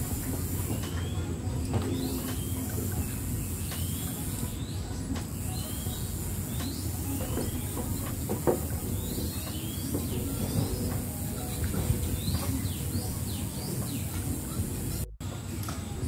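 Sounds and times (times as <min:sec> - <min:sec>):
birds chirping: 0:00.0 - 0:16.0
outdoor rumble and hiss: 0:00.0 - 0:16.0.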